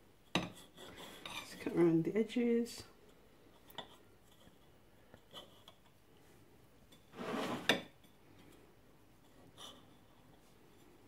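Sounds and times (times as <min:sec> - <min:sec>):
knife scraping: 0:07.1 - 0:07.8.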